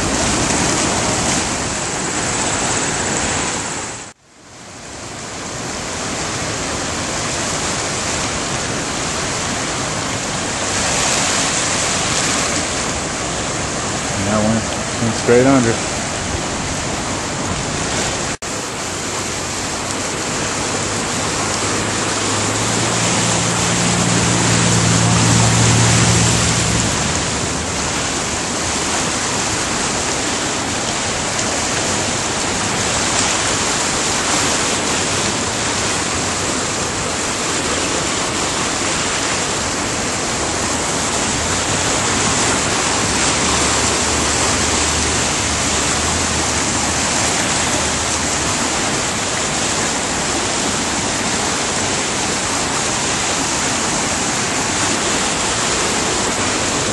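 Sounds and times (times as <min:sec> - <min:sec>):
river rushing torrent: 0:00.0 - 0:56.9
low hum: 0:19.4 - 0:29.2.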